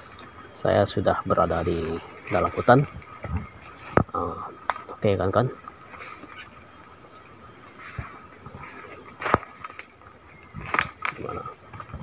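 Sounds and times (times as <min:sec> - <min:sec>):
high-pitched insect chorus: 0:00.0 - 0:12.0
snaps from walking through undergrowth: 0:07.8 - 0:12.0.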